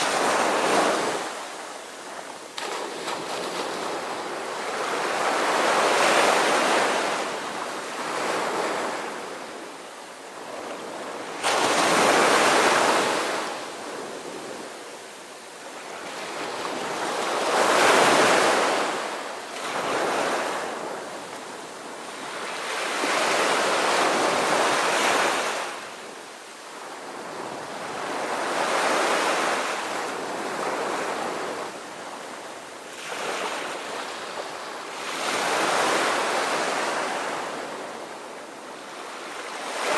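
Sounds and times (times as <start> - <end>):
sea waves washing in: 0.0 - 14.8.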